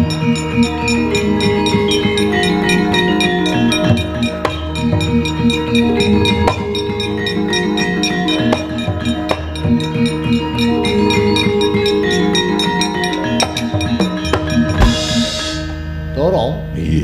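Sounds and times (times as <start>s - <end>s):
drumming: 13.5s - 15.6s
sharp strikes: 14.7s - 15.8s.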